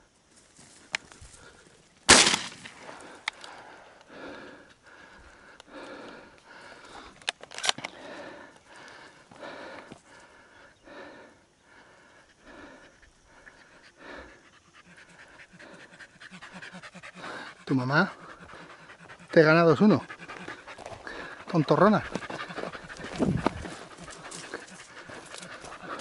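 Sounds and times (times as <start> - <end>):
shotgun shot: 2.1 - 2.9
dog panting: 3.0 - 26.0.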